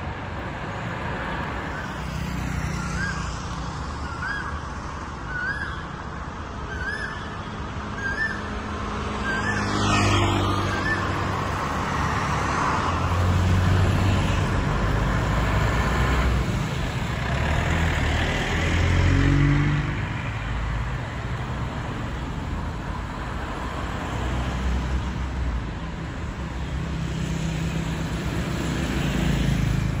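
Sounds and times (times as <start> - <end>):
cars and motorcycles passing: 0.0 - 30.0
continuous traffic rumble: 0.0 - 30.0.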